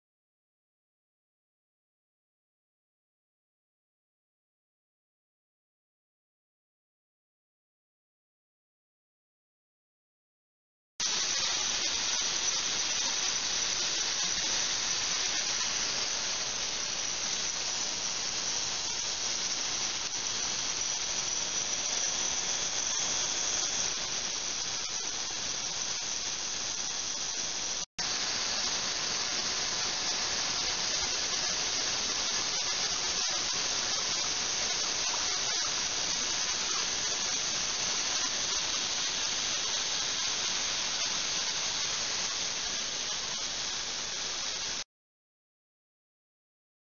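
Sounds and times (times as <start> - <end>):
ultrasonic cleaner hiss: 11.0 - 44.8
water pouring from a hose: 11.0 - 44.8.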